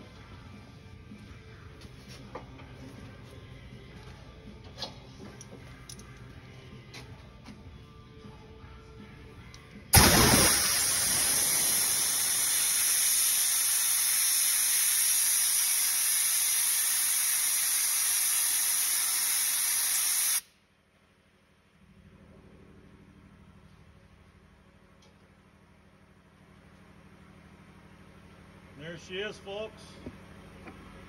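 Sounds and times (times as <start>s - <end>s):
air blow gun hissing: 10.0s - 20.5s.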